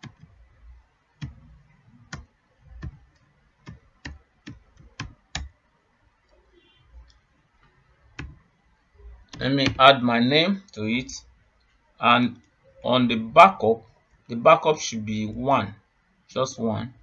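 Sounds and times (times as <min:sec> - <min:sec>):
keyboard typing: 0:00.0 - 0:05.6, 0:07.0 - 0:08.5, 0:09.2 - 0:09.8.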